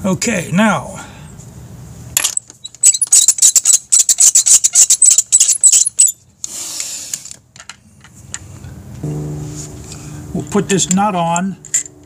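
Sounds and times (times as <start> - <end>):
wrench scraping rasp: 2.7 - 6.2.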